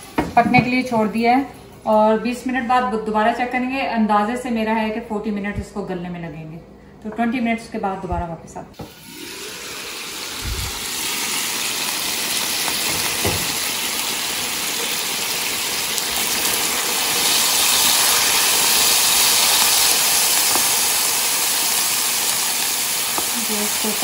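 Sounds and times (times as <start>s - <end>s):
meat sizzling and bubbling in a wok: 8.8s - 24.0s.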